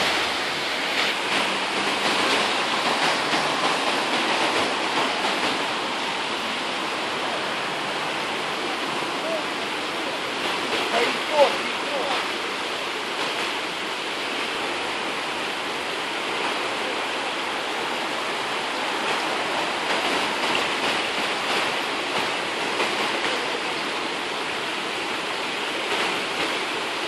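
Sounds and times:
river floodwater rushing: 0.0s - 27.0s.

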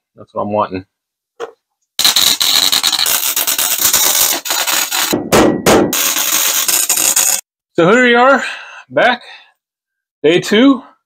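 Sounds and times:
welding arc crackling sizzle: 2.0s - 5.2s, 5.9s - 7.4s.

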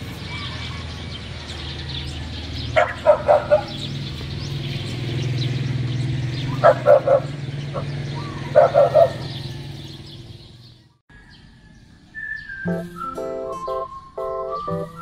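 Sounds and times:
dog barking: 2.8s - 3.9s, 6.5s - 9.4s.

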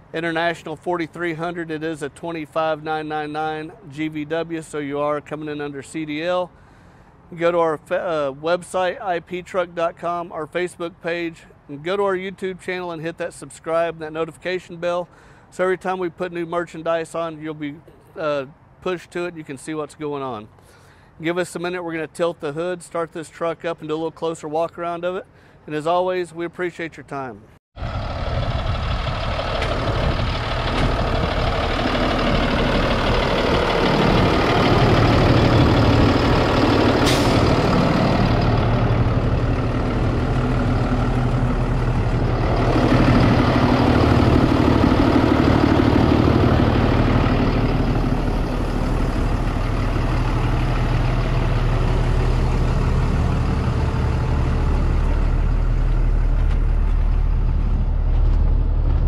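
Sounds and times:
diesel truck engine idling: 27.8s - 59.0s.

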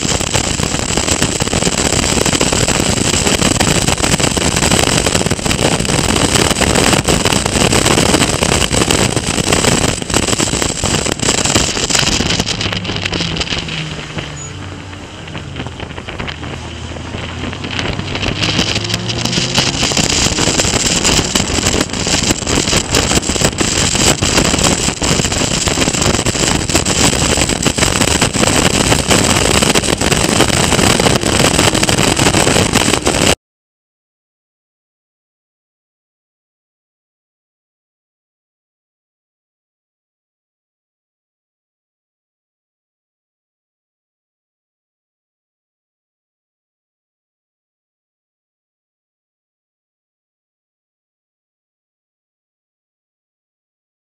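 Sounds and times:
race car engine: 0.0s - 33.3s
wind buffeting microphone: 0.0s - 33.4s.

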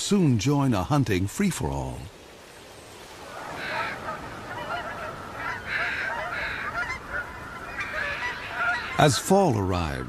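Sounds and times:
geese honking: 3.3s - 9.4s.

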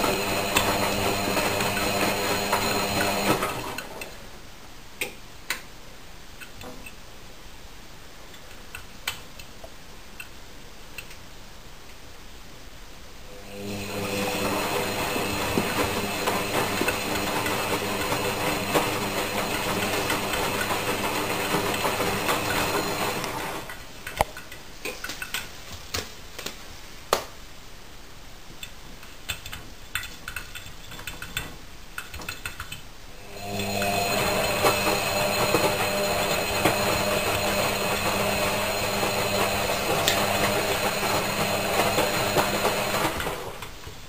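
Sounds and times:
washing machine drum motor hum: 0.0s - 4.1s, 13.5s - 23.7s, 33.2s - 43.8s.

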